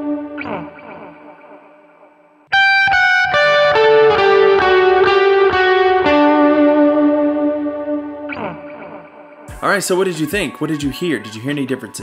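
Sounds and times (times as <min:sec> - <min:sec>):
electric guitar picked notes: 0:00.0 - 0:01.6, 0:02.5 - 0:09.6.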